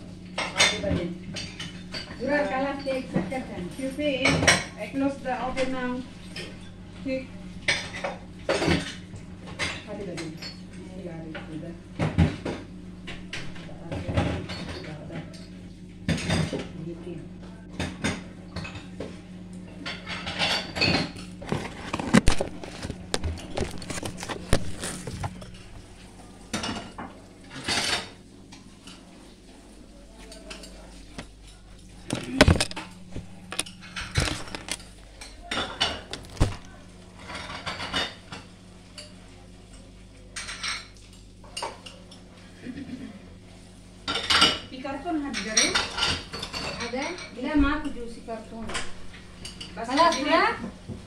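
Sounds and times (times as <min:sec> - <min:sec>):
dishes and utensils clattering: 0:13.3 - 0:15.5, 0:19.7 - 0:29.0, 0:30.2 - 0:43.1, 0:45.3 - 0:47.4
steady low hum: 0:16.8 - 0:39.2.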